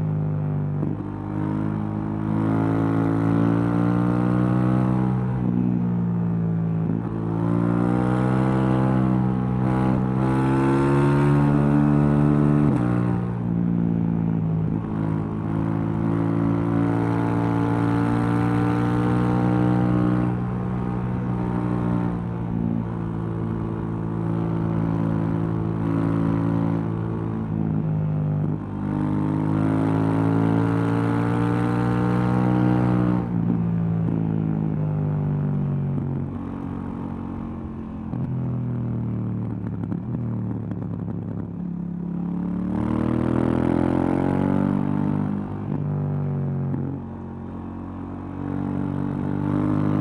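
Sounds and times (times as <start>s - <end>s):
motorcycle engine revving: 46.6s - 50.0s.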